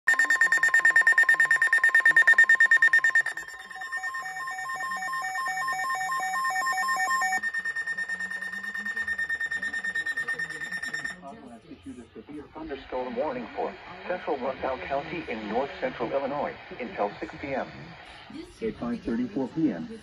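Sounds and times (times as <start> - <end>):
alternating two-tone alarm: 0.1 - 11.3
rapid electronic beeping: 0.1 - 11.3
steady high tone: 0.1 - 11.3.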